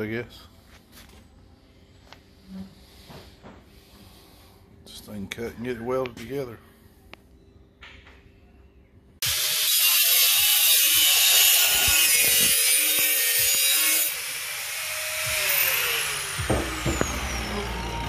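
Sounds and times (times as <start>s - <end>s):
angle grinder cutting steel: 9.2s - 18.0s.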